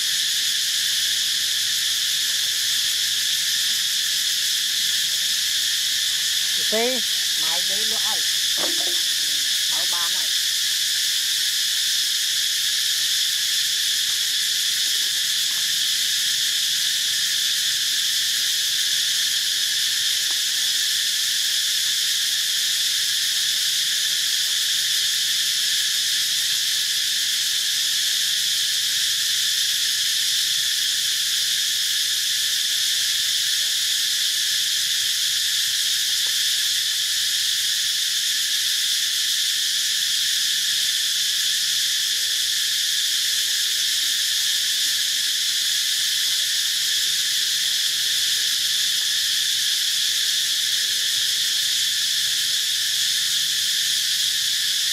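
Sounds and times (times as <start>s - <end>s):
high-pitched insect chorus: 0.0s - 54.9s.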